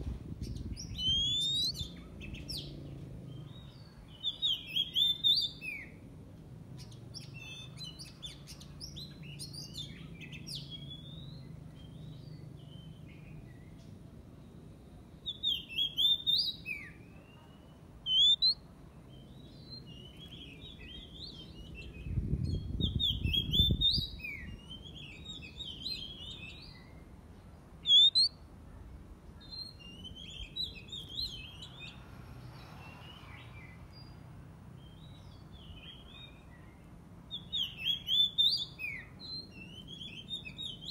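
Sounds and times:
bird singing whistled phrases: 0.4 - 2.7, 3.5 - 6.0, 15.2 - 18.6, 19.3 - 27.0, 27.8 - 28.4, 29.4 - 32.0, 34.9 - 40.9.

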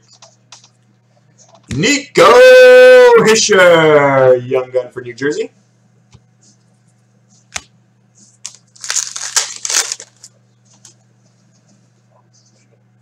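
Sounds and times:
foil wrapper tearing and crinkling: 8.4 - 10.3.

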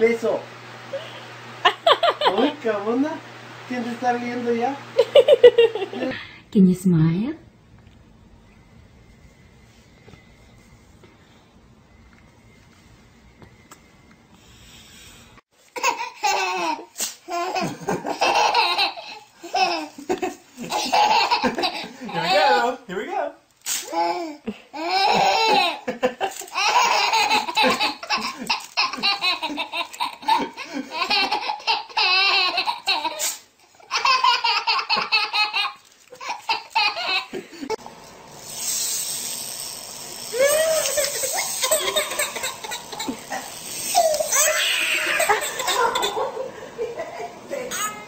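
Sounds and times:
baby laughing: 15.8 - 20.0, 20.6 - 22.7, 23.9 - 37.4, 40.4 - 46.5.

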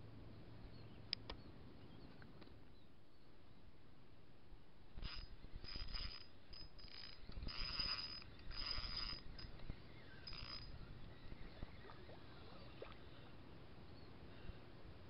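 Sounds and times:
fishing reel whirring: 5.0 - 12.8.

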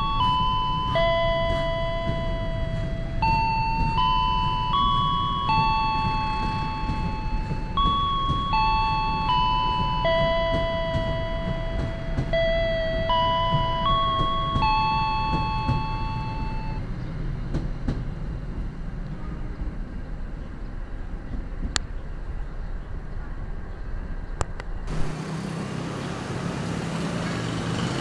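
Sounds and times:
bell-like chime melody: 0.0 - 16.9
train rumbling past: 0.0 - 28.0.

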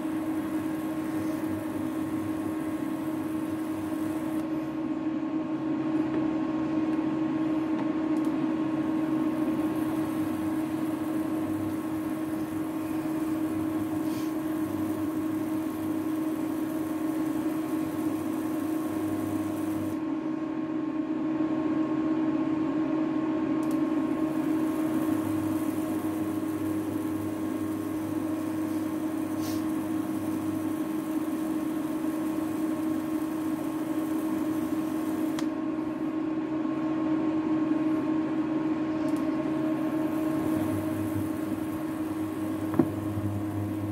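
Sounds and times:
electric cooktop humming: 0.0 - 43.9
lower hum: 38.9 - 43.9.

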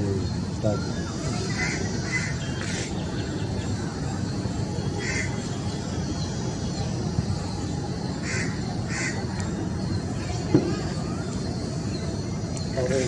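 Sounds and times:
bird calling: 0.0 - 4.2, 4.8 - 6.0.

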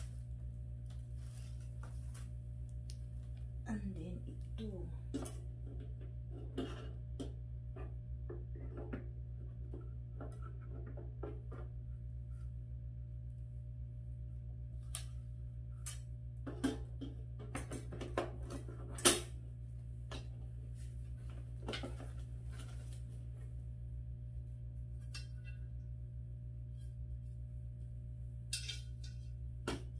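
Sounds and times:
steady low hum: 0.0 - 29.9
grill parts clicking and clanking: 28.5 - 29.3.

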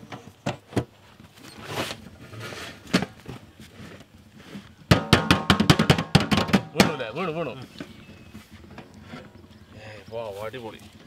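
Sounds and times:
scattered drum knocks: 4.9 - 7.5
rapid drum roll: 4.9 - 10.9.

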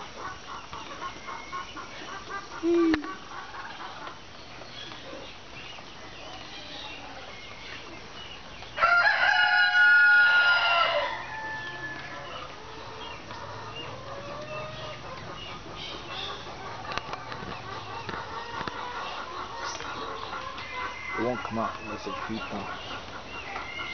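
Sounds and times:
rooster crowing: 8.8 - 12.6.

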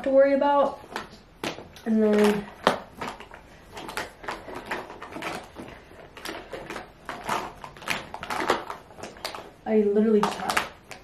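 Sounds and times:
makeup containers clattering: 0.8 - 11.0.

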